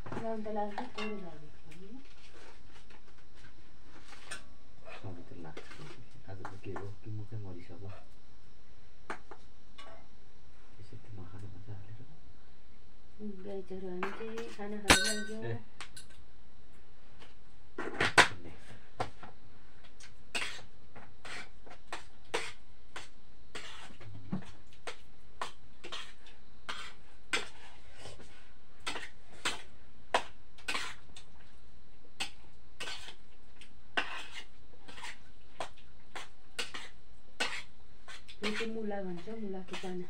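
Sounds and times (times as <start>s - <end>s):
spoon clinking on plates: 14.9s - 15.4s.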